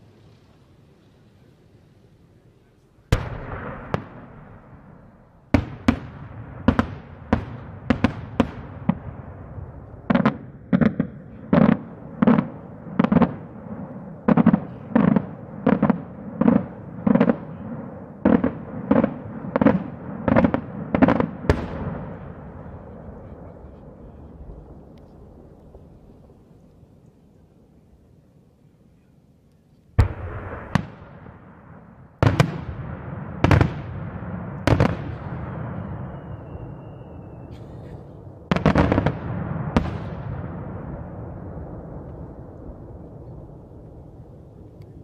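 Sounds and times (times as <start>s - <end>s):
fireworks bangs with echo: 3.0s - 26.6s, 30.0s - 45.0s.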